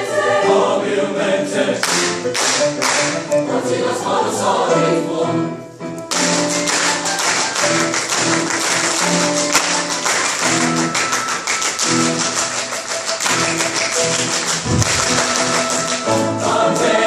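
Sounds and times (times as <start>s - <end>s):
mixed choir singing: 0.0s - 5.8s, 14.6s - 17.0s
fast hand clapping: 1.8s - 3.2s, 6.1s - 16.2s.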